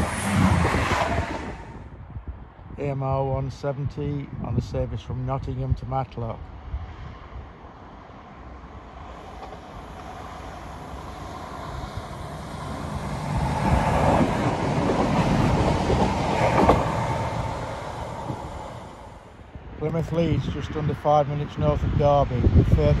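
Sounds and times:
diesel train passing: 0.0 - 1.9, 7.6 - 20.2
rail-joint clicks: 9.4 - 10.2, 13.2 - 17.6.

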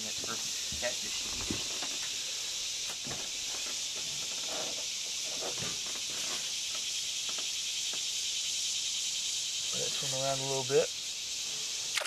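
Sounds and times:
insect chorus: 0.0 - 12.0.

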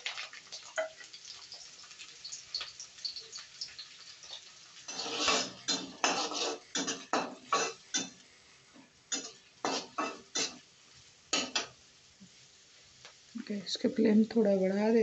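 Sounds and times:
onions frying in oil: 0.0 - 15.0
metal spatula scraping a pan: 4.2 - 8.2, 9.1 - 10.7, 11.3 - 11.8.

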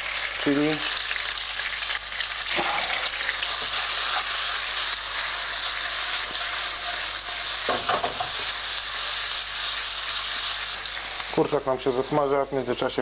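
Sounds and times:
chicken sizzling in hot oil: 0.0 - 13.0
spoon scraping a pan: 2.5 - 8.6.

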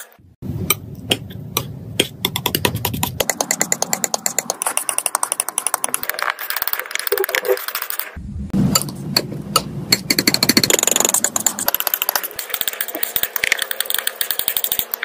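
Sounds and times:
low hum: 8.2 - 11.7.

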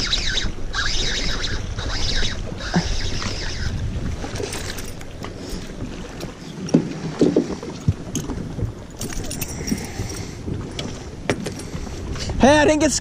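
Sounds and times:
wind rumble on microphone: 0.0 - 13.0
knocks and bumps on boat deck: 10.8 - 11.6.

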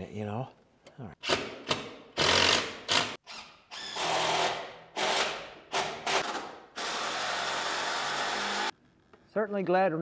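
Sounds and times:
small power tool running: 6.8 - 8.7.

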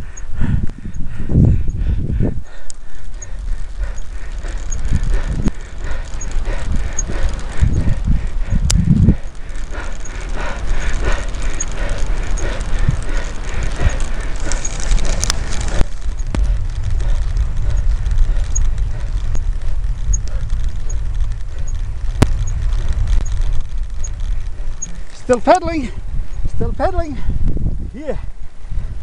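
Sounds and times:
wind buffeting microphone: 0.0 - 29.0
faint high tick: 8.6 - 9.0.

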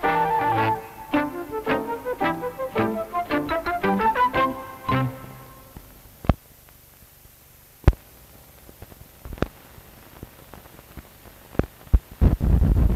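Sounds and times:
music: 0.0 - 5.8
film soundtrack hiss: 0.0 - 12.9.

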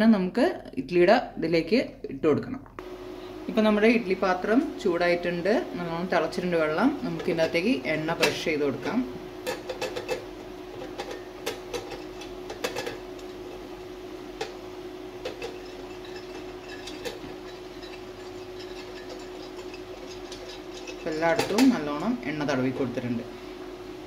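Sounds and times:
steady low hum: 0.0 - 24.0
brush tapping metal plate: 15.2 - 22.1.

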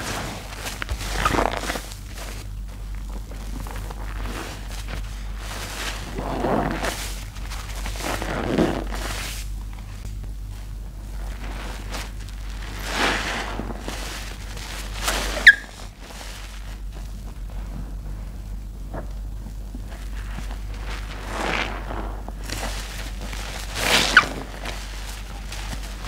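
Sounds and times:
sponges squelching in soapy water: 0.0 - 9.8, 10.8 - 26.0
sharp squeak: 15.3 - 15.8.

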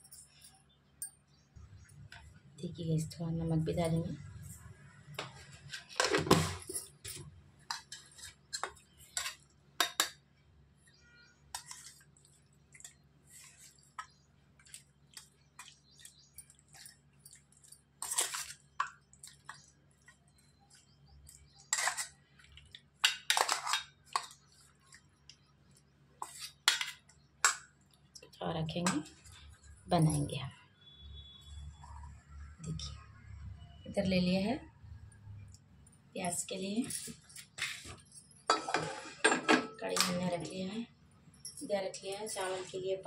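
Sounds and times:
utensils clinking and scraping dish: 5.2 - 10.2, 11.5 - 12.1, 15.2 - 19.6, 21.5 - 24.5, 36.9 - 40.3.

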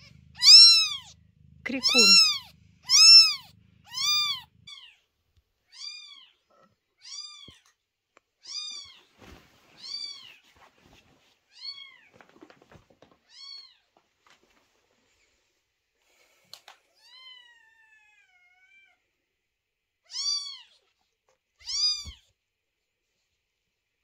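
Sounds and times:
kitten crying: 0.0 - 5.0, 20.1 - 20.7, 21.6 - 22.2.

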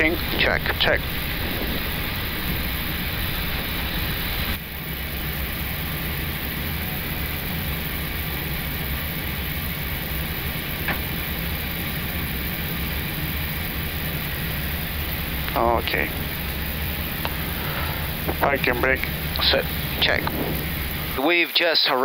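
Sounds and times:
aircraft flight-deck hum: 0.0 - 21.2.

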